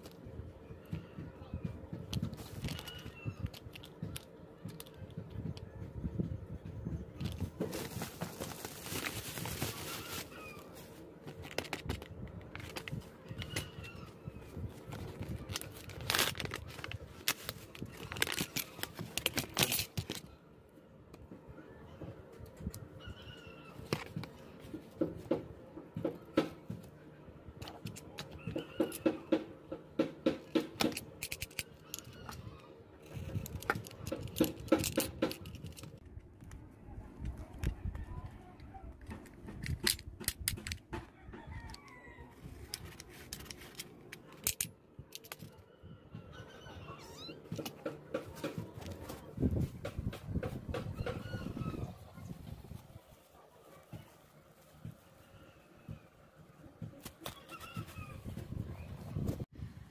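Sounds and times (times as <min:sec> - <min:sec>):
plastic packaging crinkling: 0:07.2 - 0:13.7, 0:14.8 - 0:20.3
scissors clicking and rattling: 0:30.8 - 0:32.4, 0:33.0 - 0:36.0.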